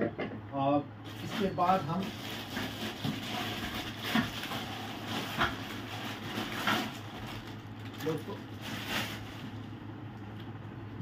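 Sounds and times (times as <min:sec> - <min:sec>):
low steady hum: 0:00.0 - 0:11.0
plastic and cardboard rustling: 0:01.1 - 0:09.8.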